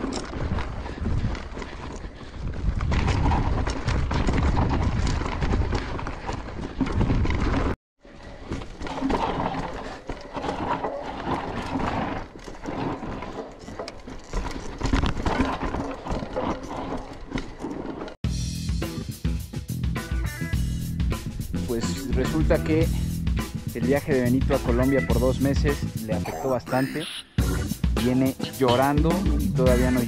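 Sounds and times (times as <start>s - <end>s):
bike rattles and knocks: 0.0s - 18.2s
tyres rushing on dirt: 0.0s - 18.2s.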